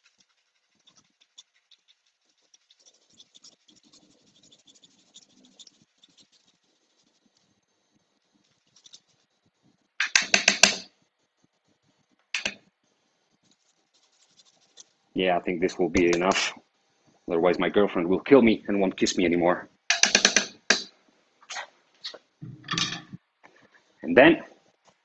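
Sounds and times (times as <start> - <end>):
rapid scraping strokes: 0.0 - 7.6, 13.4 - 14.9.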